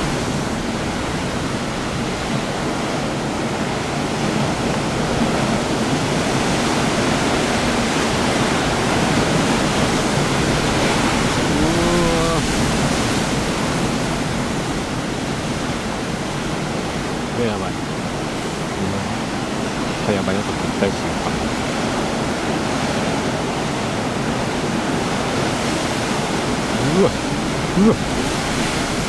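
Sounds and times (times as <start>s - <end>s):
surf breaking over rocks: 0.0s - 29.0s
low voiced sound: 11.4s - 12.6s, 18.8s - 19.2s.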